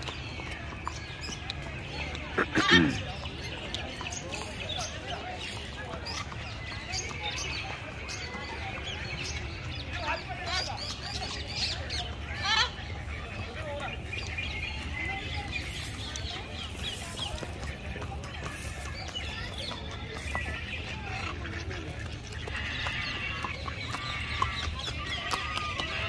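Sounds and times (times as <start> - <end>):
birds calling and chirping: 0.0 - 26.0.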